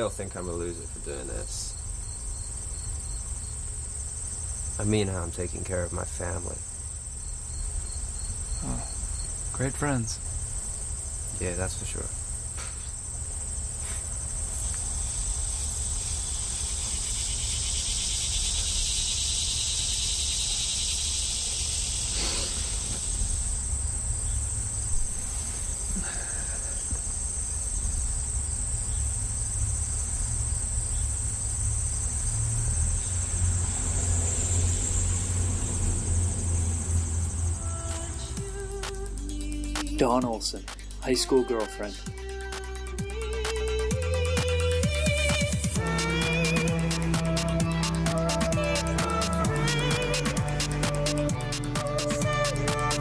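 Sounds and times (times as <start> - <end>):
insect chorus: 0.0 - 53.0.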